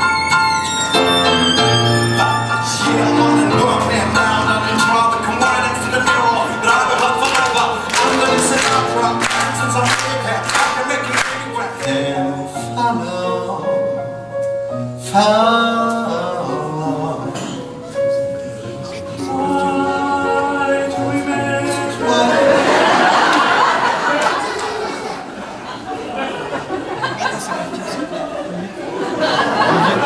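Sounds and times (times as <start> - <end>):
violin: 0.0 - 11.7
piano music: 0.0 - 24.2.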